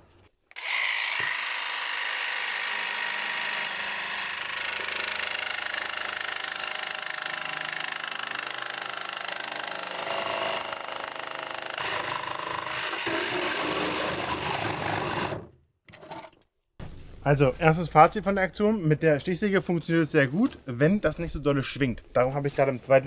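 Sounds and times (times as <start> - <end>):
jigsaw cutting plastic sheet: 0.4 - 16.4.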